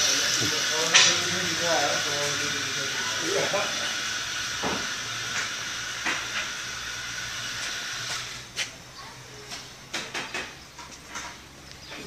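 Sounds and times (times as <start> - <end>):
steam hissing: 0.0 - 8.7.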